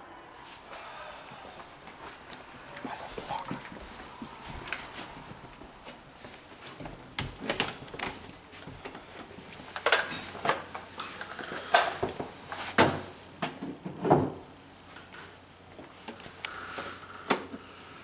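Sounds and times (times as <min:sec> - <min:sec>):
closet door opening: 0:06.7 - 0:08.4.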